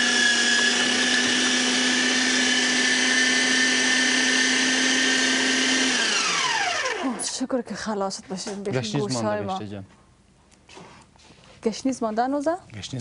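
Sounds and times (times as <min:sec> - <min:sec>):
electric meat grinder whining: 0:00.0 - 0:07.4.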